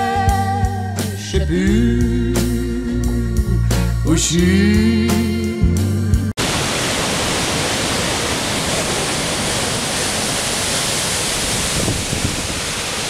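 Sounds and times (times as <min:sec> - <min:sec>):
white water rushing over rocks: 0:06.4 - 0:13.0.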